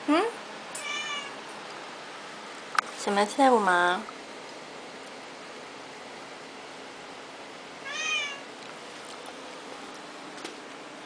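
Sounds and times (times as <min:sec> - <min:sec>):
cat meowing: 0:00.8 - 0:01.4, 0:07.8 - 0:08.5.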